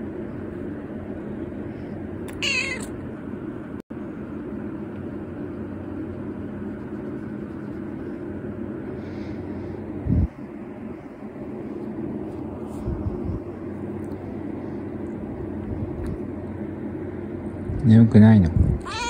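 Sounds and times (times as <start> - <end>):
low background hum: 0.0 - 19.0
kitten meowing: 2.3 - 2.9, 18.8 - 19.0.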